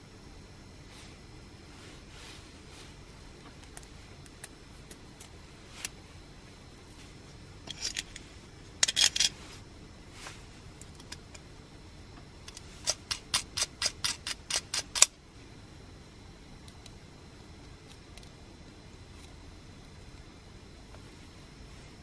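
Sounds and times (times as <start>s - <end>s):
metal parts clicking on metal lid: 8.8s - 9.4s.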